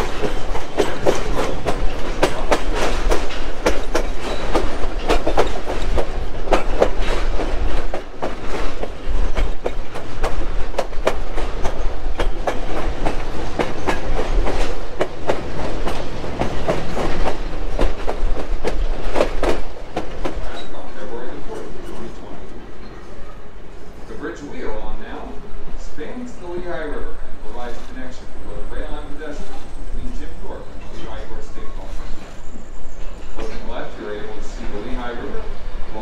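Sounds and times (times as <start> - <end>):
train wheels clacking over rail joints: 0.0 - 23.1, 28.8 - 36.0
low rumble of train: 0.0 - 36.0.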